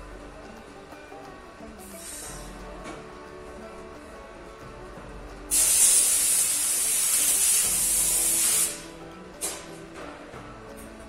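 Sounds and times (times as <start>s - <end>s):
pressurised spray hissing: 1.8s - 2.5s, 5.5s - 9.7s.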